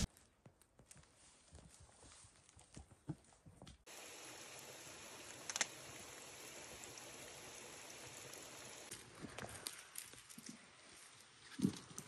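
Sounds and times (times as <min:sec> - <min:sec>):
steady hiss: 0:03.9 - 0:09.1
sharp clicks: 0:05.4 - 0:05.8.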